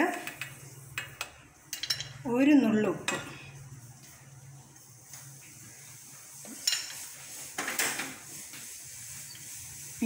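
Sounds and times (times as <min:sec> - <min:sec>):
kitchen utensils clinking: 0:00.0 - 0:03.4, 0:06.4 - 0:08.3.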